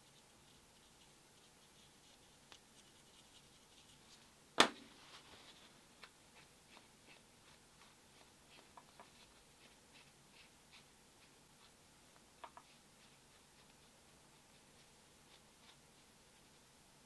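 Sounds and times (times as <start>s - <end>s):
cloth wiping rustles: 3.0s - 11.8s, 12.6s - 16.8s.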